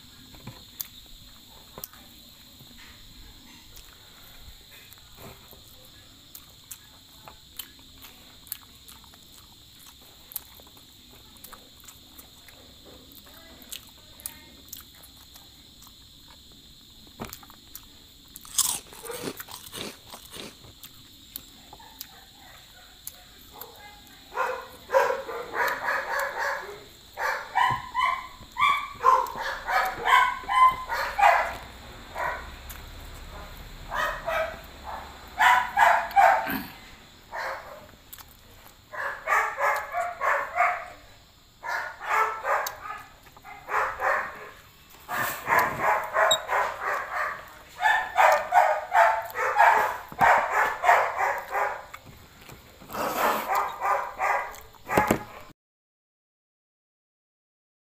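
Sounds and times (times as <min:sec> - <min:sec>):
man chewing and biting food: 0:07.5 - 0:13.9, 0:14.7 - 0:22.1, 0:32.6 - 0:33.2, 0:38.0 - 0:38.8, 0:51.4 - 0:53.8, 0:54.5 - 0:54.8
dog barking: 0:18.6 - 0:20.5, 0:21.7 - 0:32.6, 0:33.3 - 0:36.7, 0:37.3 - 0:38.0, 0:38.9 - 0:52.0, 0:53.0 - 0:55.5.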